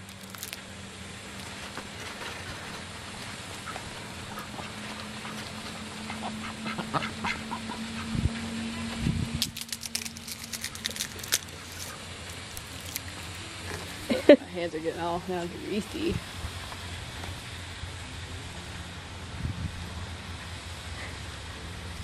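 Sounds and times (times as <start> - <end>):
sharp crackling clicks: 0.0 - 0.6, 9.4 - 13.4
ducks quacking: 3.6 - 8.2.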